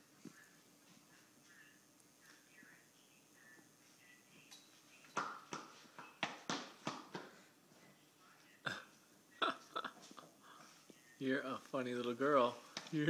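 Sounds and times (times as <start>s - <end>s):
toddler footsteps on tile floor: 4.7s - 7.9s.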